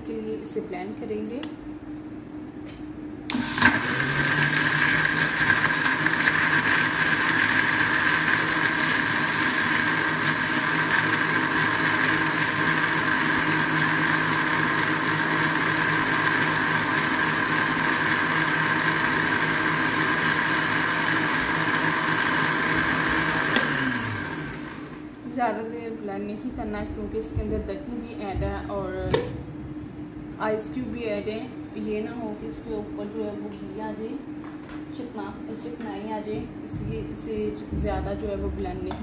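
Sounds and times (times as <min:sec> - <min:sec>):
blender motor whirring: 0:03.3 - 0:25.2.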